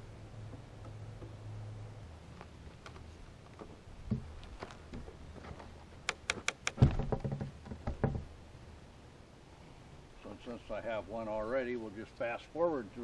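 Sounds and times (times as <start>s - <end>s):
wooden knocks and creaks: 2.8s - 8.3s
sharp clicks: 6.0s - 6.8s
heavy thud of log: 6.8s - 8.3s.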